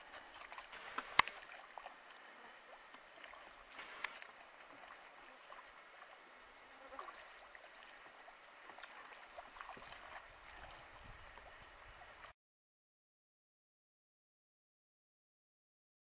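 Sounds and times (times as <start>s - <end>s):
water trickling and splashing: 0.0s - 12.3s.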